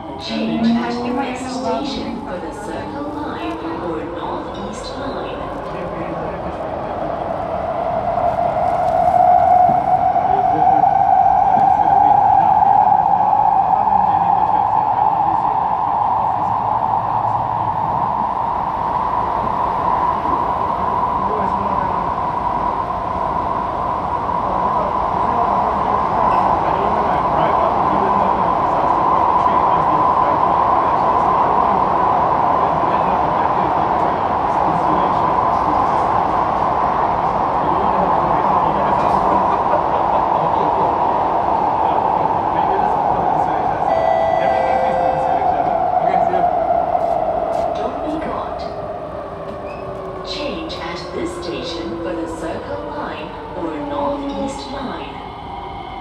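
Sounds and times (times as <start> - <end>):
wheels rumbling on track: 19.3 - 55.3
train traction motor whine: 43.4 - 52.1.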